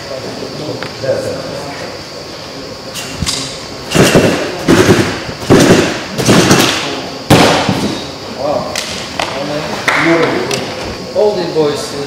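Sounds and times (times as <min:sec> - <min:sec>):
heavy thuds on a tumbling track: 0:03.9 - 0:08.0.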